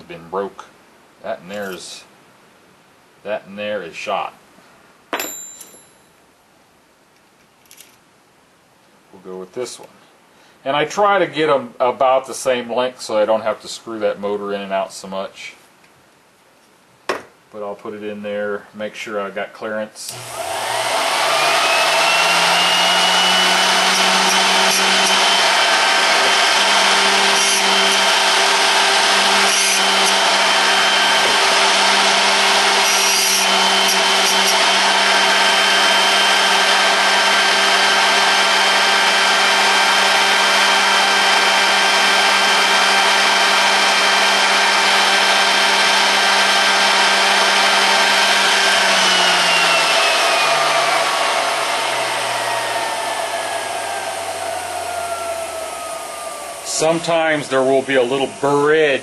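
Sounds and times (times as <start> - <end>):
grinder motor whining: 20.1 - 58.8
drill bit scratchy grinding: 20.2 - 44.2, 46.4 - 55.6.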